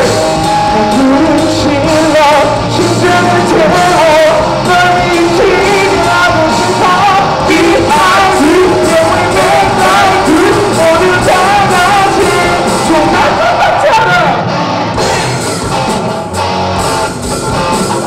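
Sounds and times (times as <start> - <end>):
man singing into microphone: 0.0 - 14.5
bass guitar: 0.0 - 18.0
drum kit: 0.0 - 18.0
electric guitar: 0.0 - 18.0.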